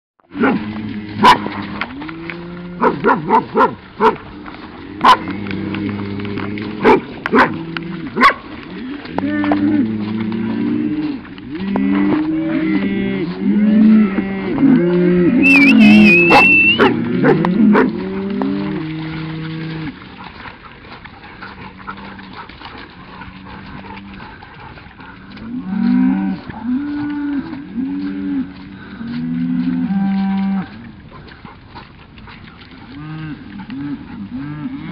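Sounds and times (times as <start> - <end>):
cattle lowing: 0.3 - 34.9
dog barking: 1.2 - 1.5, 2.8 - 4.2, 6.8 - 7.6, 8.2 - 8.4, 16.3 - 17.9.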